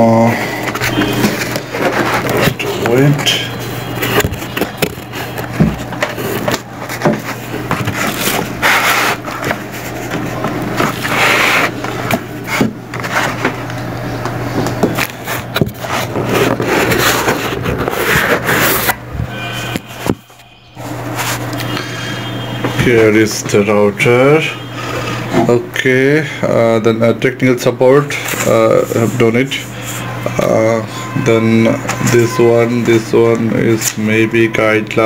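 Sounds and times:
steady low hum: 0.0 - 35.0
cardboard scraping and rubbing: 0.6 - 21.8.

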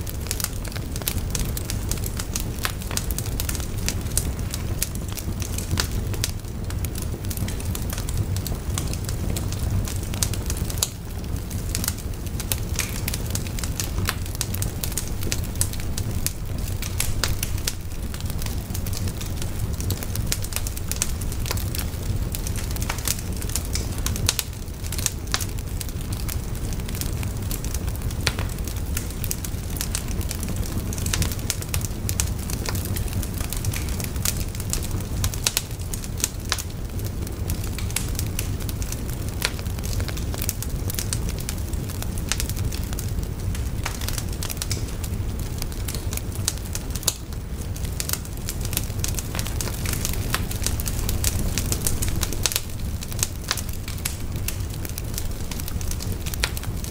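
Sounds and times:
low fire rumble: 0.0 - 56.9
wood fire crackling: 0.0 - 56.9.

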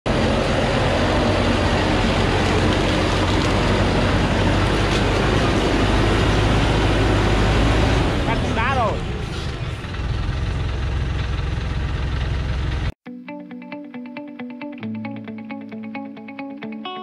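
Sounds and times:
diesel truck engine running: 0.1 - 13.0.

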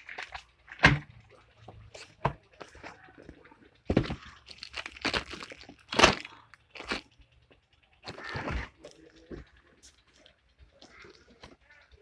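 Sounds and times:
rustling and crinkling: 1.8 - 7.1.

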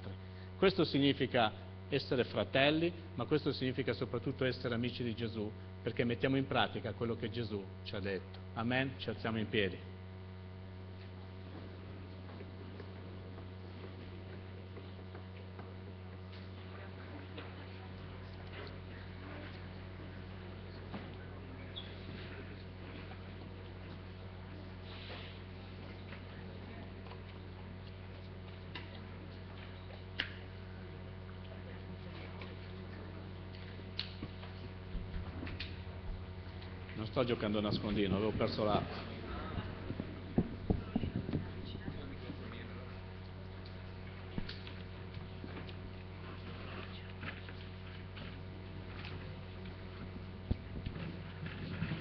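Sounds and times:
steady low hum: 0.0 - 52.0
murmur of crowd: 16.4 - 52.0.

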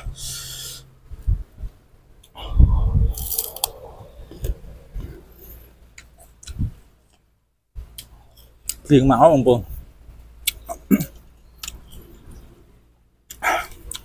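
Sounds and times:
crunching and chewing: 3.1 - 4.6, 10.4 - 12.3, 13.3 - 14.0.

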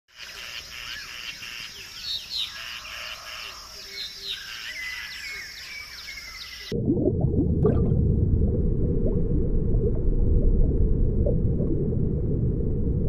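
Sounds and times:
birds chirping: 0.1 - 6.7.

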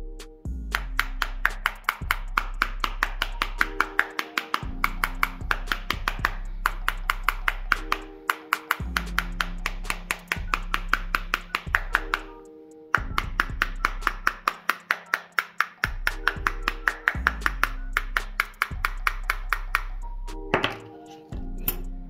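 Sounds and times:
music with ticking beat: 0.0 - 22.0
held bass notes: 4.6 - 8.1, 8.8 - 12.3, 15.8 - 20.5.

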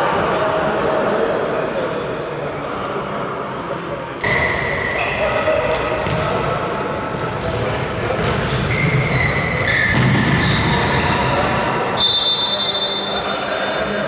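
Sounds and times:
shoes squeaking on court floor: 4.2 - 6.4, 7.1 - 13.9
ball kicked and bouncing: 6.0 - 6.3, 9.9 - 10.4.

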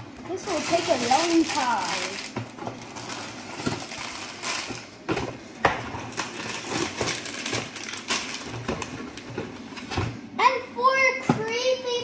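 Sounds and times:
plastic bags crinkling: 0.2 - 9.8.

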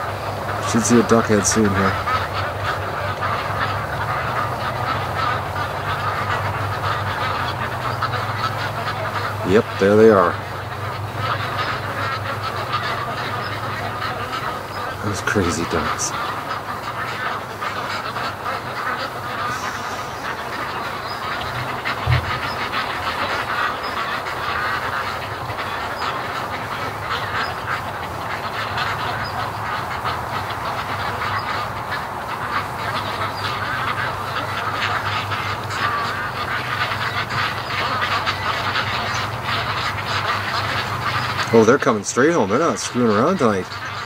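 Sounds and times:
ducks quacking: 0.0 - 44.0
low thump: 22.0 - 22.5.

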